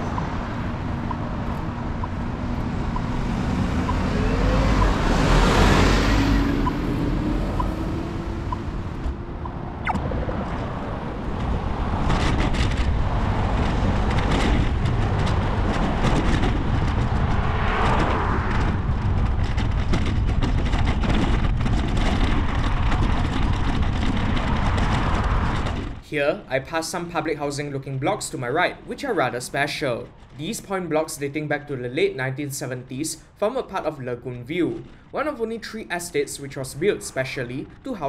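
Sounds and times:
cars passing: 0.0s - 28.9s
steady low rumble: 6.6s - 28.5s.

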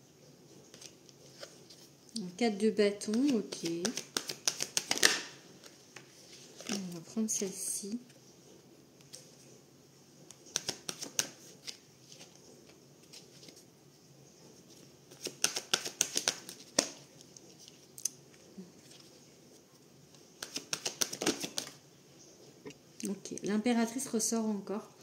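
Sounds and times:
cards shuffled and clicking: 0.7s - 1.9s, 3.0s - 7.0s, 10.3s - 13.6s, 15.1s - 19.2s, 20.1s - 21.8s.

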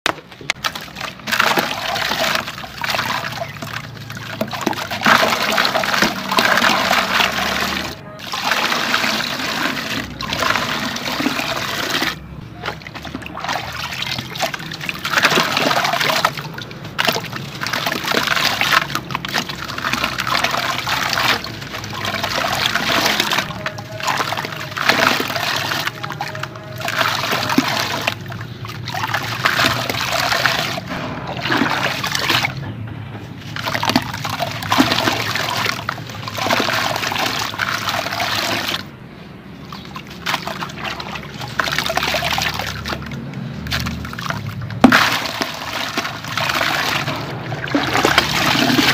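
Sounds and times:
water sloshing and trickling: 0.1s - 48.9s
gritty crumbling into water: 43.7s - 48.9s.

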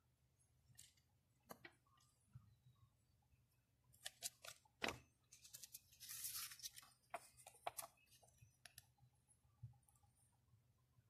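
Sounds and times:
paper rustling: 4.0s - 7.9s.

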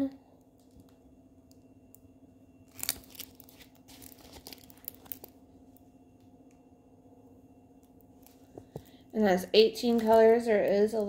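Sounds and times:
plastic film crinkling: 2.7s - 5.8s.

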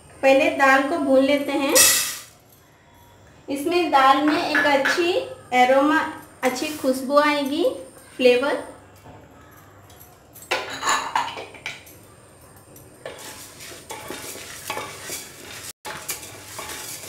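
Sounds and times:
lentils rustling in a pot: 6.4s - 7.2s, 12.6s - 17.0s.

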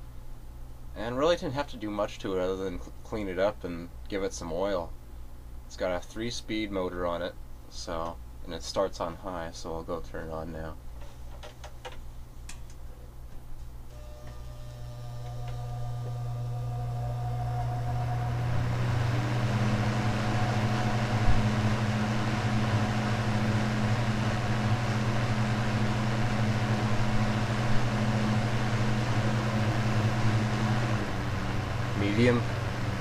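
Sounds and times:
box fan humming: 10.6s - 33.0s.

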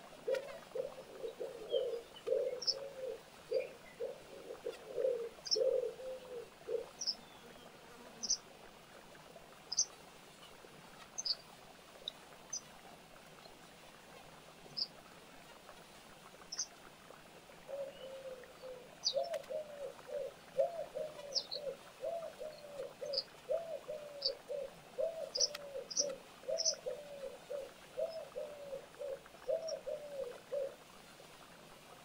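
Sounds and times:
dove cooing: 0.0s - 7.6s, 17.6s - 30.9s
small birds chirping: 0.3s - 8.4s, 11.1s - 11.4s, 17.8s - 30.7s.

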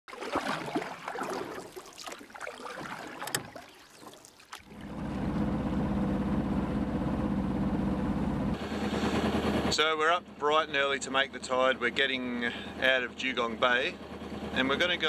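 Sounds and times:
water sloshing and bubbling: 0.0s - 7.6s
boat engine chugging: 4.7s - 15.0s.

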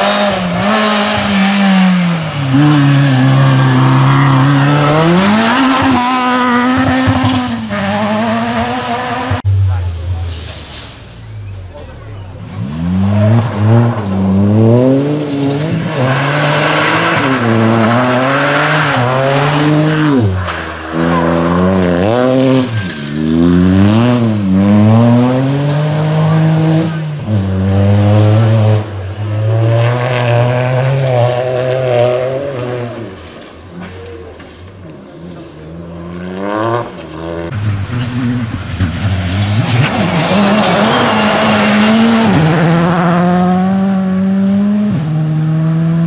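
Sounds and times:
rally car engine revving: 0.0s - 46.0s
tyres sliding on gravel: 9.6s - 12.2s, 12.8s - 24.6s, 36.9s - 43.9s.

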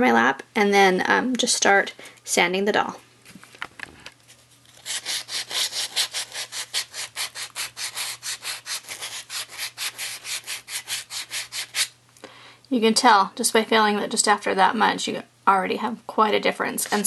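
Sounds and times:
wet sandpaper scratching: 4.8s - 11.9s.

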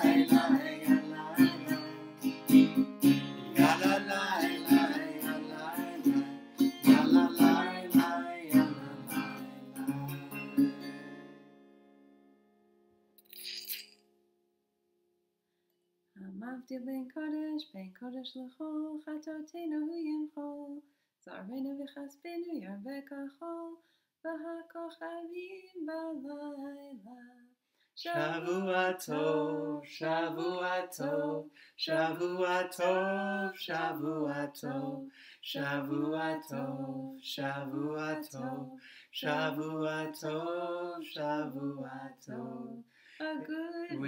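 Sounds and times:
man singing: 0.0s - 2.2s, 3.5s - 10.3s, 28.0s - 44.0s
woman singing: 0.0s - 2.2s, 3.6s - 10.4s, 16.2s - 44.0s.

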